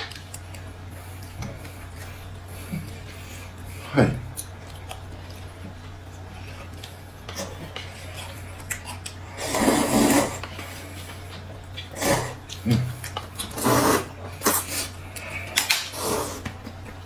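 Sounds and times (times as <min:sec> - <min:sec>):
low steady hum: 0:00.0 - 0:17.0
noodles being slurped: 0:07.4 - 0:10.9, 0:13.3 - 0:16.5.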